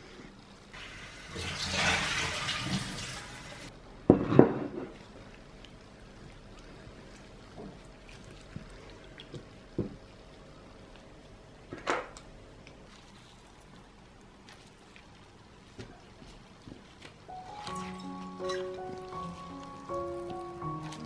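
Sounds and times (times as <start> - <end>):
water splashing and dripping: 0.8 - 3.7.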